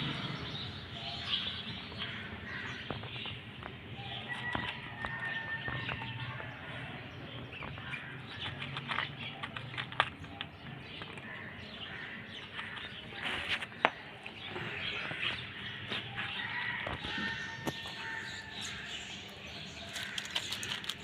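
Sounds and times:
cat crunching dry kibble: 19.9s - 21.0s.

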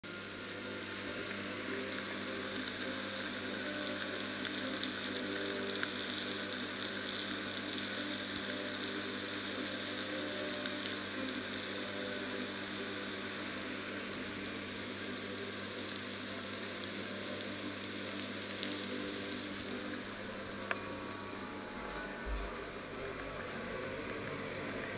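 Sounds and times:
meat sizzling in a grill pan: 0.1s - 24.9s
steady low hum: 19.0s - 24.9s.

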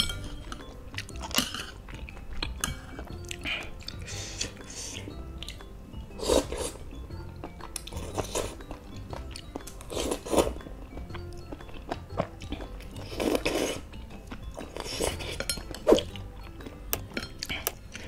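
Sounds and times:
chewing: 0.0s - 18.0s
person slurping noodles: 6.2s - 6.8s, 13.0s - 13.9s.

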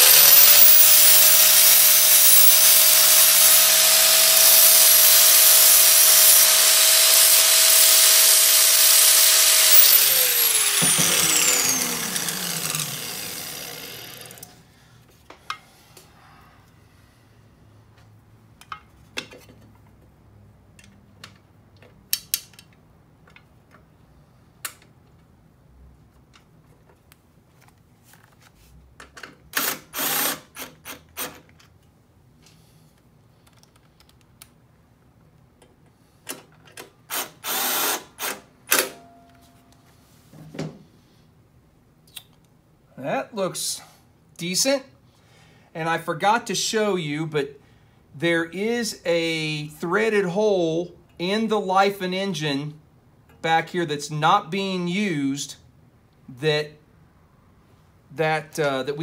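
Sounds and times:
cordless screwdriver running: 0.0s - 14.5s, 29.6s - 30.4s, 37.1s - 38.3s
angle grinder grinding steel: 0.0s - 14.6s.

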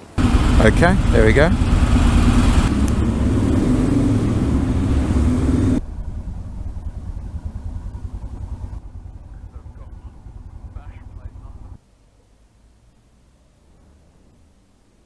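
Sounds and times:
motorcycle engine droning: 0.0s - 11.8s.

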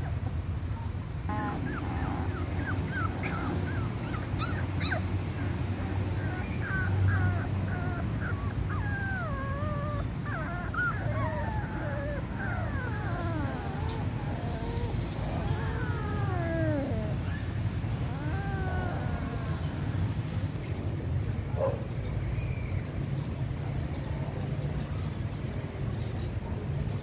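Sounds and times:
puppies whimpering: 1.3s - 20.2s.

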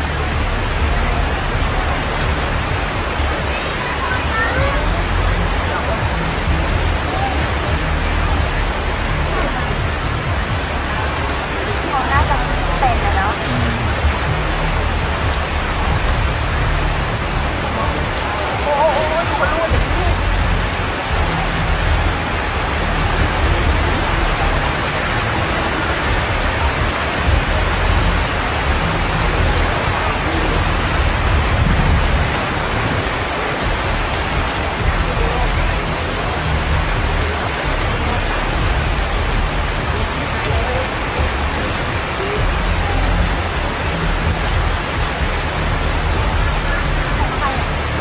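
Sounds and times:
heavy rain hissing: 0.0s - 48.0s
wind gusts on microphone: 0.4s - 48.0s.

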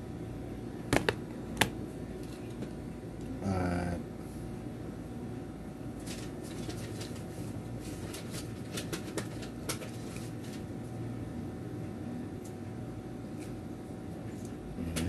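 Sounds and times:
low background hum: 0.0s - 15.0s.

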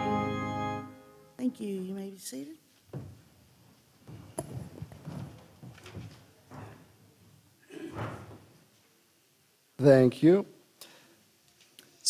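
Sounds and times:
people shuffling in wooden pews: 2.6s - 9.3s.

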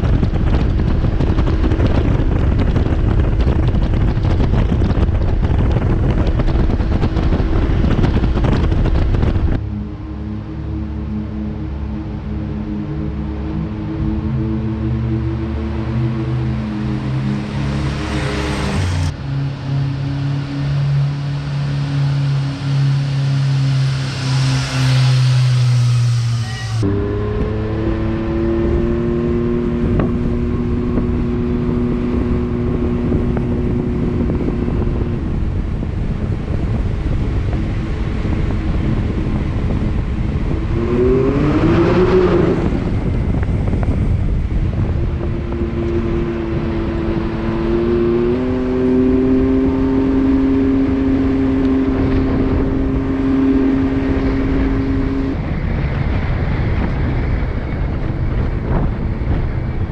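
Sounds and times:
vehicle engine cruising and revving: 0.0s - 59.9s.

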